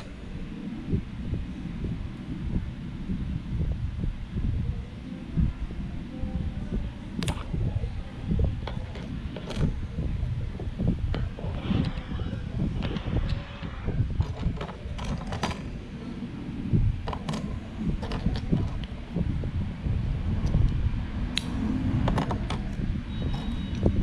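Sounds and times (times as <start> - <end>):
low handling rumble: 0.0 - 24.0
plastic parts clicking and creaking: 8.6 - 9.8, 12.7 - 15.8, 17.0 - 18.9, 21.4 - 24.0.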